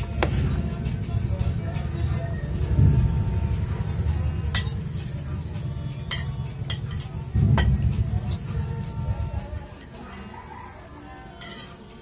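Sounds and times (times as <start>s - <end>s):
low rumble: 0.0s - 9.8s
utensil clinking against plate: 6.1s - 7.7s, 11.4s - 12.0s.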